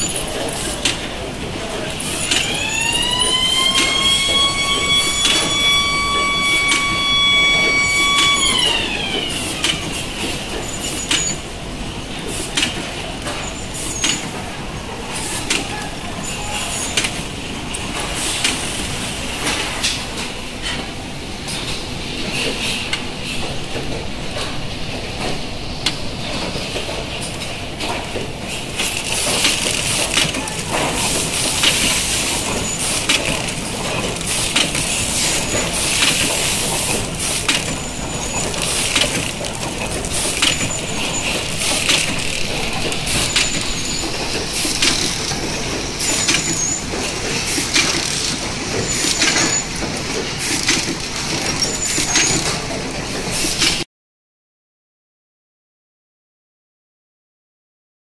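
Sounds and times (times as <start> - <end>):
machinery clicking and clatter: 0.0 - 53.8
motor whine: 2.4 - 9.9.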